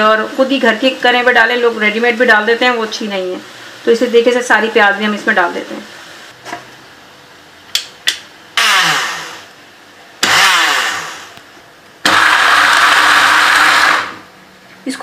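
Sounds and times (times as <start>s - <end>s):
electric blender grinding: 8.6s - 9.6s, 10.2s - 11.4s, 12.0s - 14.3s.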